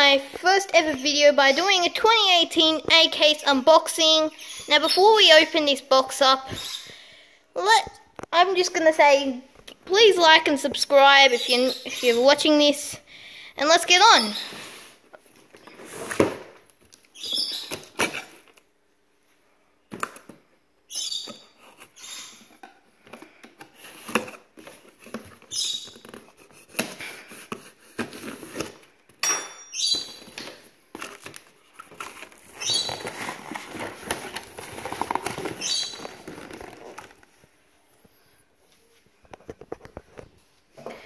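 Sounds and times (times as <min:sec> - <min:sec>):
tape tearing rips: 0:17.6 - 0:18.6
cardboard rustling and scraping: 0:30.2 - 0:37.5.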